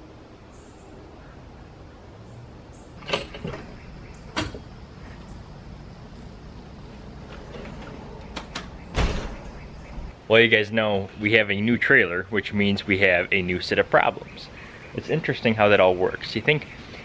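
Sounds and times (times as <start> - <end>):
steady low hum: 0.0 - 17.0
metal ramp door clacks: 3.0 - 4.7, 7.2 - 10.1.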